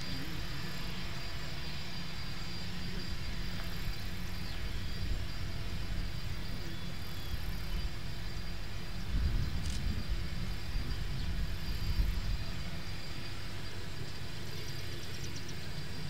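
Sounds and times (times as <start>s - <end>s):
distant jet engines taxiing: 0.0s - 16.0s.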